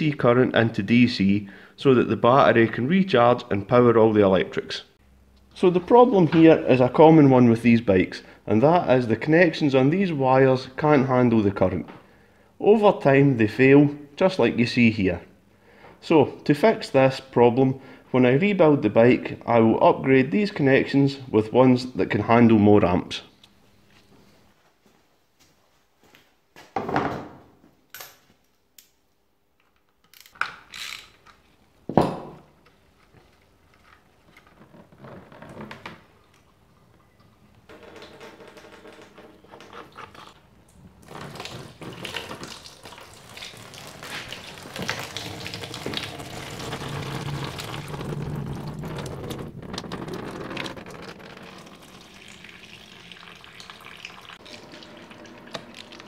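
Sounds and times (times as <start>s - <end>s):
fluid splashing into drain pan: 41.2s - 49.4s.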